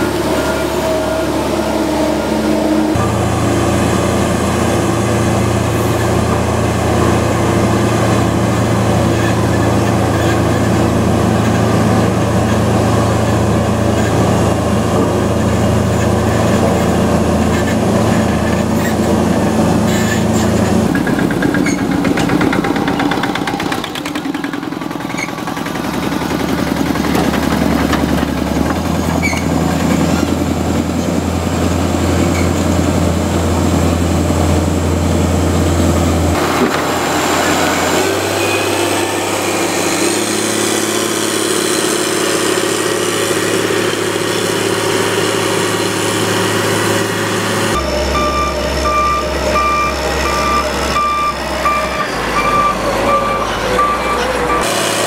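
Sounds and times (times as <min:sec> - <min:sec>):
diesel engine under load: 0:00.0 - 0:55.0
reversing alarm beeping: 0:47.7 - 0:54.8.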